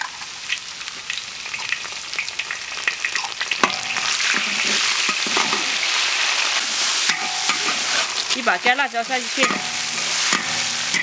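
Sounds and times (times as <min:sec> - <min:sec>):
chili paste sizzling in hot oil: 0:00.0 - 0:11.0
metal spatula scraping wok: 0:03.6 - 0:11.0.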